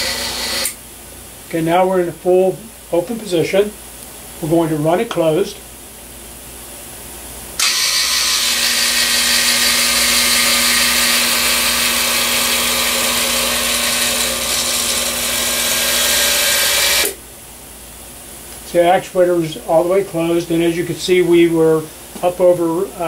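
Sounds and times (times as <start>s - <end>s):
electric actuator motor running: 0.0s - 0.8s, 7.6s - 17.2s.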